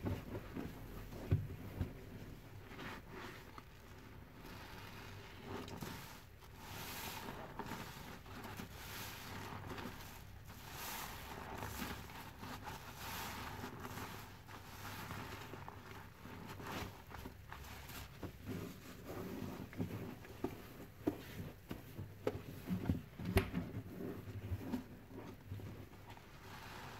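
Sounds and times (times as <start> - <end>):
squelching foamy sponge: 0.0 - 26.9.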